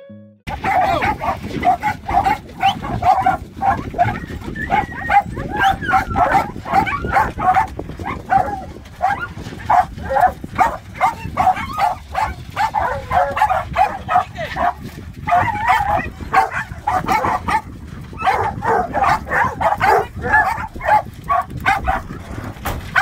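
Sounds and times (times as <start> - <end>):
hounds barking and yelping: 0.5 - 23.0.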